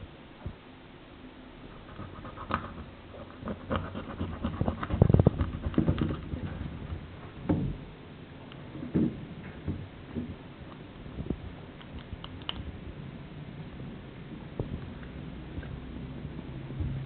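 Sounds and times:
soft wet clicks: 11.8 - 12.7.

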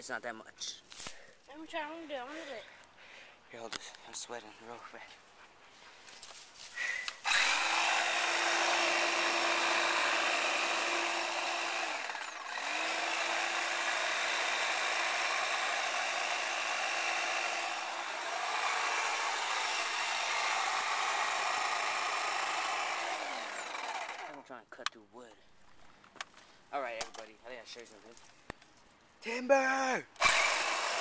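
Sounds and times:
electric hedge trimmer running: 7.2 - 24.4, 30.2 - 31.0.

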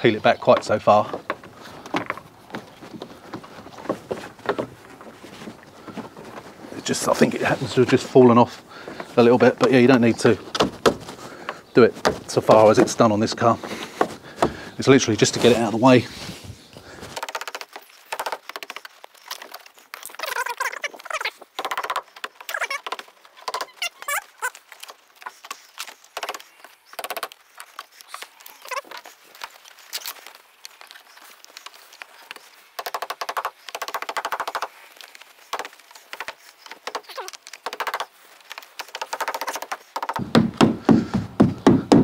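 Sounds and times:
mallet tapping rubber seal: 39.0 - 42.0.

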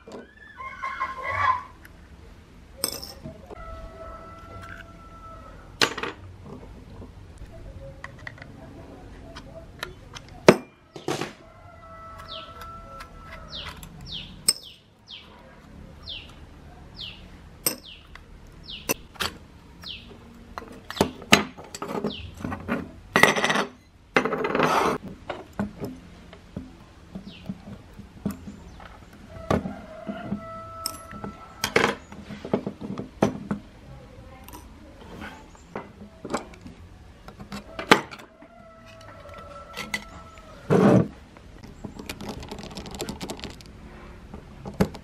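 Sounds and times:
bird chirps: 13.4 - 15.4, 16.0 - 19.0, 19.8 - 20.2, 22.0 - 22.4.

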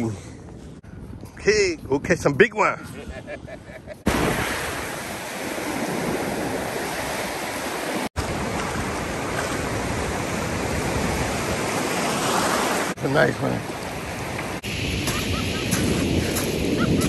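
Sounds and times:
ocean surf rushing: 4.0 - 17.0.

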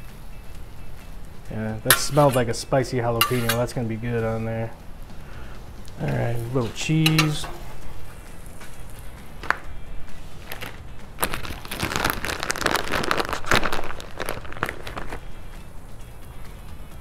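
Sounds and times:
plastic bag crinkling: 10.2 - 15.5.

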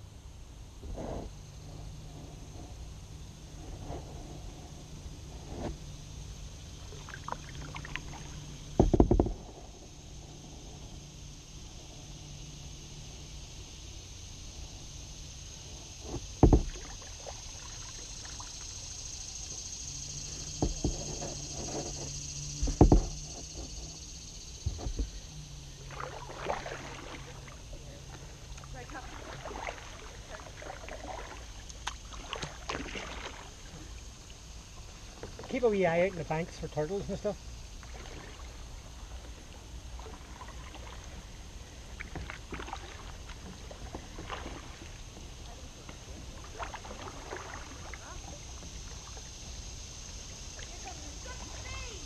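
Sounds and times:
low steady rumble: 0.0 - 52.0
paddle water splashing: 0.3 - 52.0
paddle knocking on kayak hull: 8.0 - 9.6, 16.0 - 17.0, 20.5 - 23.9, 24.6 - 25.1.

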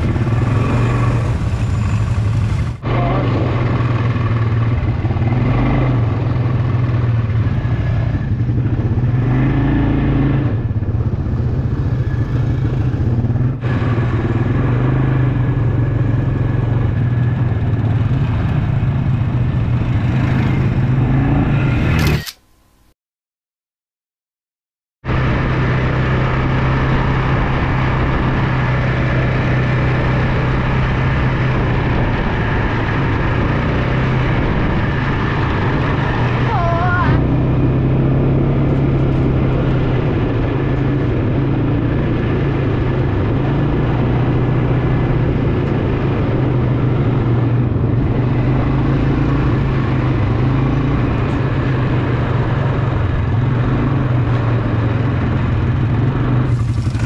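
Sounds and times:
quad bike engine running: 0.0 - 22.3, 25.1 - 57.0
wind on microphone: 26.4 - 57.0.

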